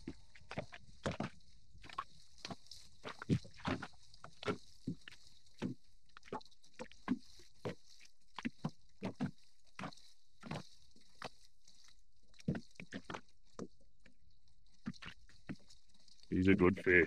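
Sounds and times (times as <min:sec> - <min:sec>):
waves lapping against boat hull: 0:00.0 - 0:17.0.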